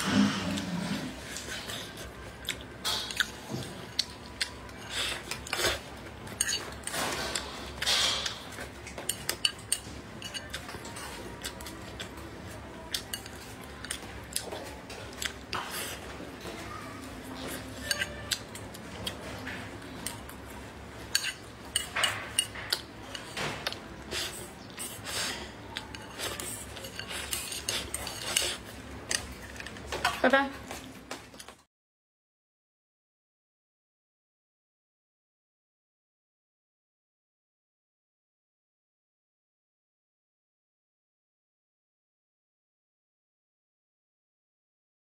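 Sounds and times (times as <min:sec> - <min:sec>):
close-up chewing: 0:00.5 - 0:06.4, 0:10.3 - 0:16.1.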